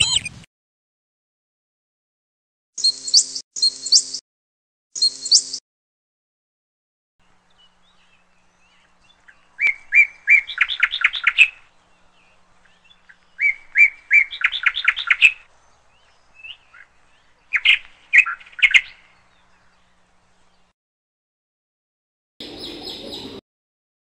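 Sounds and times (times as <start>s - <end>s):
canary singing trills: 2.8s - 4.2s, 5.0s - 5.6s, 7.3s - 20.7s, 22.4s - 23.4s.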